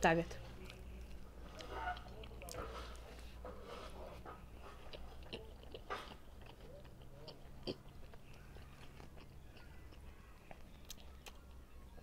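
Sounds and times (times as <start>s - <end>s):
chewing bread: 0.4s - 12.0s.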